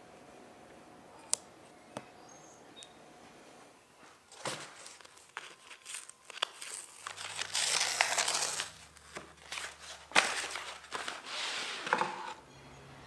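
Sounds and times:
paper and plastic rustling: 4.0s - 12.4s.

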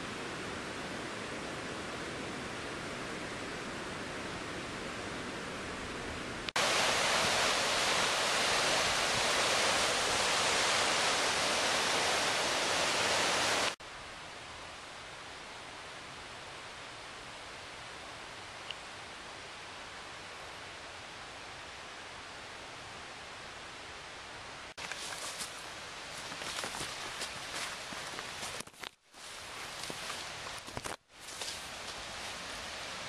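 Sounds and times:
stream water rushing: 0.0s - 13.8s, 24.7s - 33.0s
quiet steady hiss: 0.0s - 33.0s.

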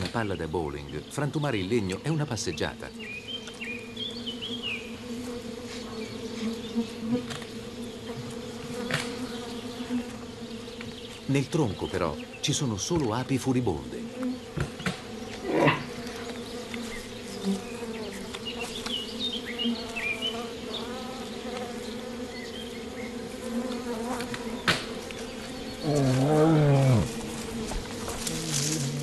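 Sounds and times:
bees buzzing: 0.0s - 29.0s
bear groaning: 15.4s - 15.9s, 25.8s - 27.2s.

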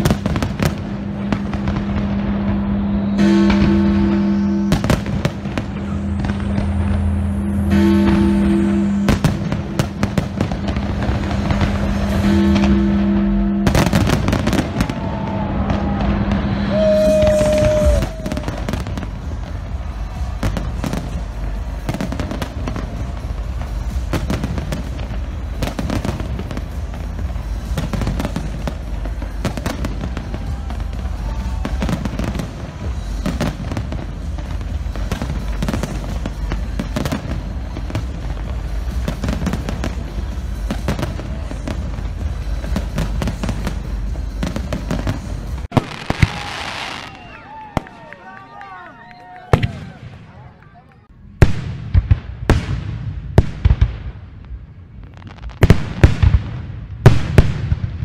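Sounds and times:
deep rumble: 0.0s - 45.8s
sharp firework bangs: 0.0s - 47.2s, 51.4s - 54.4s, 55.4s - 58.0s
firework shell bursts and crackling: 0.0s - 48.0s
music: 1.3s - 46.0s.

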